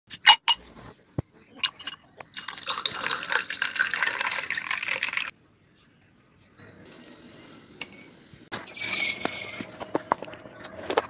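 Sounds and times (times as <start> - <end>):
milk pouring into a glass: 1.6 - 5.3.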